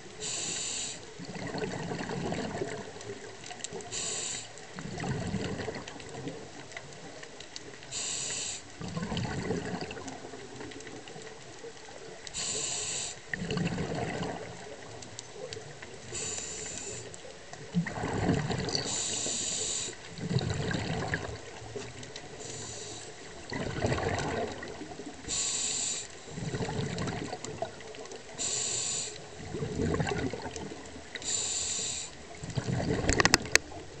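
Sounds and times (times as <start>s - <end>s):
regulator inhale hiss: 0.2s - 1.1s, 3.8s - 4.6s, 7.9s - 8.7s, 12.3s - 13.3s, 16.0s - 17.2s, 18.8s - 20.0s, 22.3s - 23.2s, 25.2s - 26.4s, 28.3s - 29.4s, 31.2s - 32.2s
exhaled bubbles: 1.2s - 6.9s, 8.8s - 11.2s, 13.3s - 34.0s.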